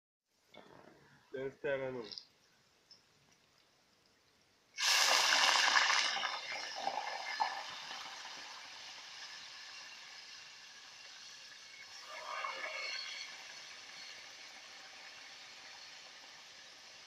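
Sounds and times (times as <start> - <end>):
hot oil sizzling and crackling: 4.0 - 17.0.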